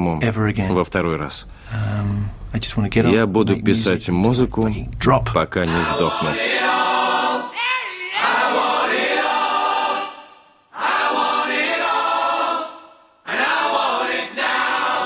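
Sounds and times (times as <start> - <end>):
choir-like vocal harmonies: 3.0 - 4.5, 5.5 - 15.0.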